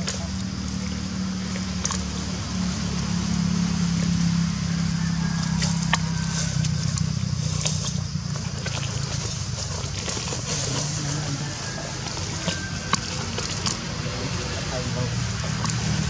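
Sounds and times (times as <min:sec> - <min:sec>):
engine humming: 0:00.0 - 0:16.0
dry leaves crackling: 0:05.0 - 0:14.0.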